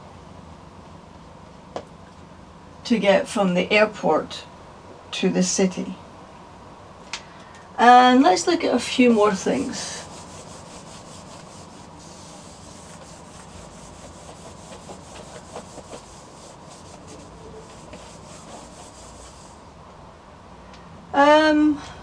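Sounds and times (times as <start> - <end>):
eraser rubbing whiteboard: 9.1 - 19.6.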